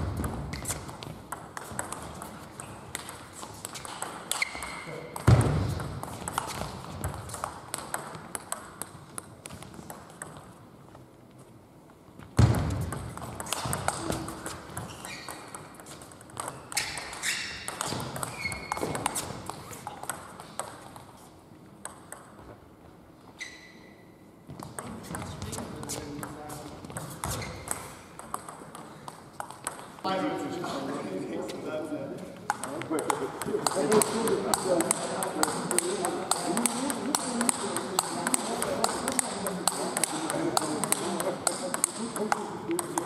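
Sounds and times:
table tennis ball clicking: 0.2s - 10.6s, 12.8s - 21.1s, 21.8s - 22.4s, 26.2s - 29.9s, 32.5s - 43.0s
shoe squeaks on floor: 3.8s - 4.9s, 13.6s - 15.6s, 16.6s - 19.3s, 23.3s - 24.2s, 27.0s - 28.0s.

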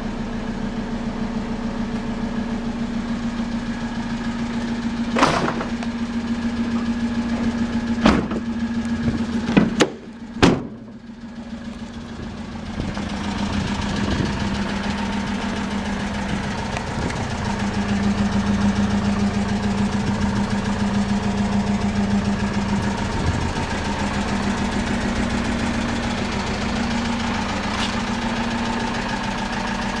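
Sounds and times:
diesel engine idling: 0.0s - 30.0s.

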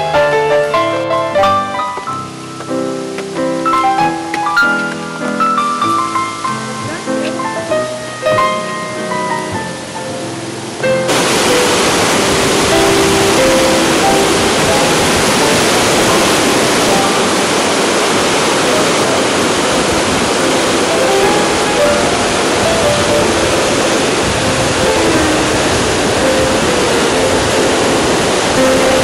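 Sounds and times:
soft background music: 0.0s - 18.2s
water pouring over a spillway: 9.8s - 29.0s.

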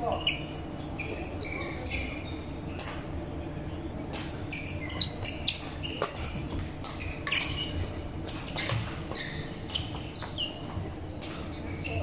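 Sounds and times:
shoes squeaking on wooden floor: 4.5s - 12.0s.

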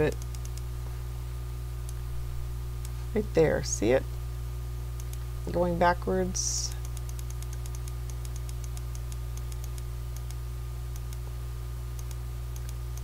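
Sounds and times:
low electrical hum: 0.0s - 13.0s
computer mouse clicking: 0.1s - 0.7s, 5.0s - 5.2s, 6.8s - 11.2s, 12.0s - 13.0s.

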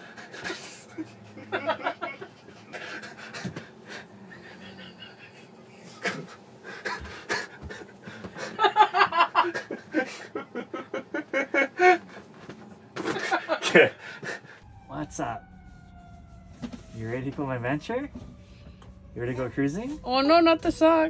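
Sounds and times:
people laughing hard: 0.2s - 3.6s, 4.4s - 12.0s, 13.0s - 14.5s.

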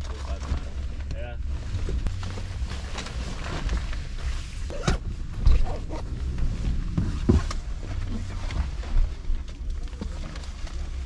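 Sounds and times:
low rumble: 0.0s - 11.0s
jacket fabric rustling: 1.6s - 9.4s.

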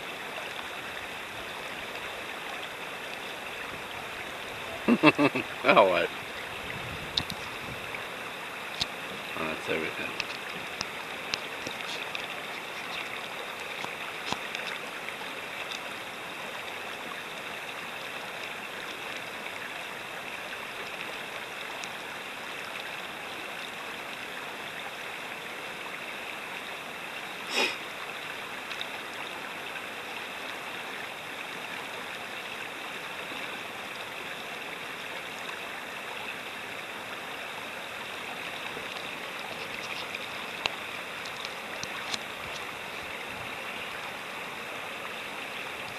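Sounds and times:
river rapids rushing: 4.8s - 6.1s.

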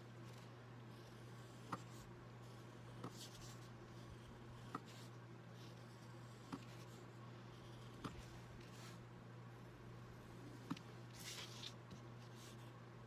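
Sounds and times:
low steady hum: 0.0s - 13.0s
ink pen scratching on paper: 0.3s - 9.0s.

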